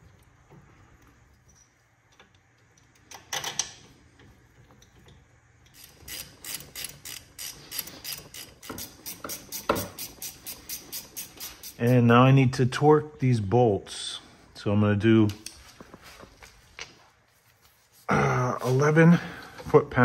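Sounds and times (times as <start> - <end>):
ratchet wrench clicking: 5.6 - 12.1.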